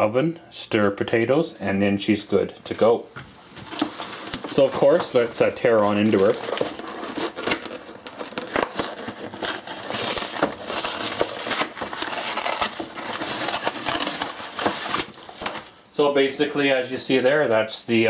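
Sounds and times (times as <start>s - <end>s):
paperboard crinkling and clicking: 3.6s - 15.7s
cardboard box tearing: 3.8s - 15.7s.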